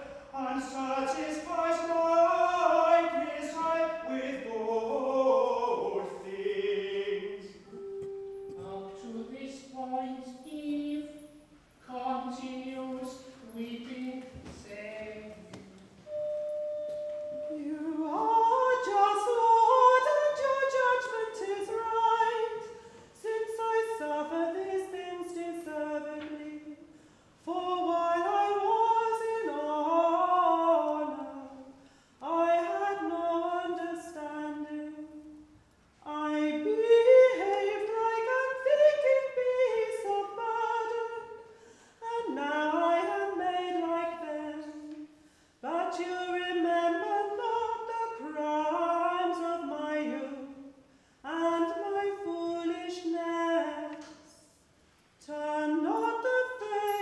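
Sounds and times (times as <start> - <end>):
woman singing unaccompanied chant: 0.4 - 7.2, 8.4 - 15.9.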